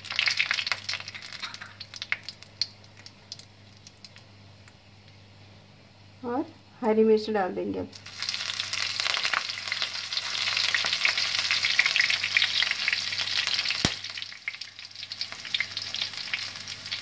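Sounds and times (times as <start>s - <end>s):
chillies sizzling in hot oil: 0.0s - 4.3s, 7.9s - 17.0s.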